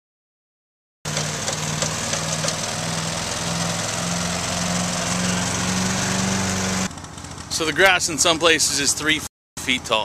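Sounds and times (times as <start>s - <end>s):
lawn mower engine running: 1.1s - 8.6s.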